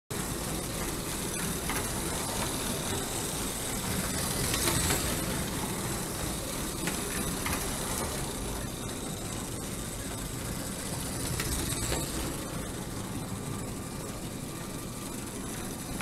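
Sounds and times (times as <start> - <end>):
toy train motor whirring: 0.2 - 16.0.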